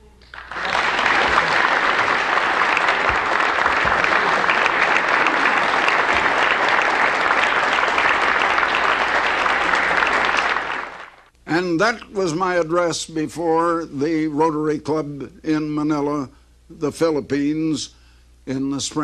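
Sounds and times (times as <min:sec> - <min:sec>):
audience applauding: 0:00.3 - 0:11.3.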